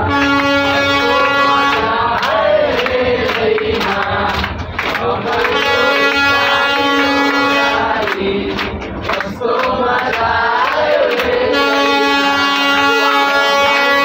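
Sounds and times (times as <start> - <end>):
hands clapping along: 1.6 - 11.6
group singing: 1.6 - 12.2.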